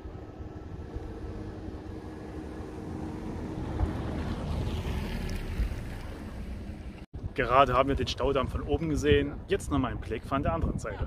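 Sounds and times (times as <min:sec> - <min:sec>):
wind across microphone: 0:03.3 - 0:11.0.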